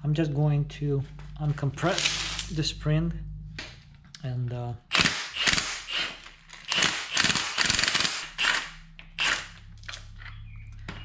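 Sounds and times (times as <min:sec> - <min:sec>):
impact wrench hammering: 0:04.9 - 0:09.6.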